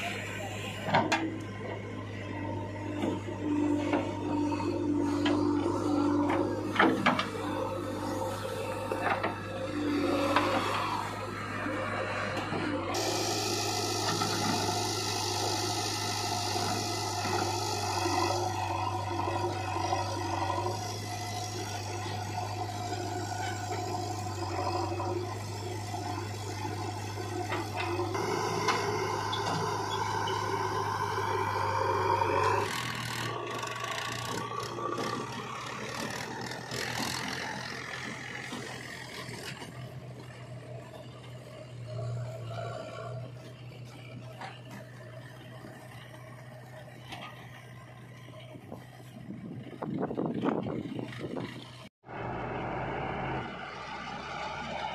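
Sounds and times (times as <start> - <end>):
diesel engine running under load: 0.0 - 54.9.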